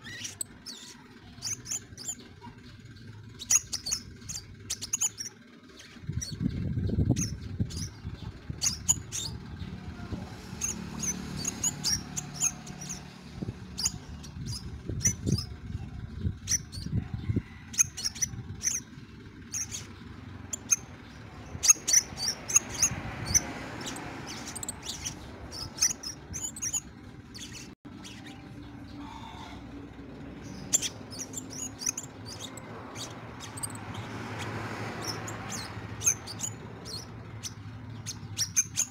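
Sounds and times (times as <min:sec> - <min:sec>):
bird chirping high and sharp: 0:00.0 - 0:17.1, 0:17.7 - 0:29.6, 0:30.4 - 0:38.9.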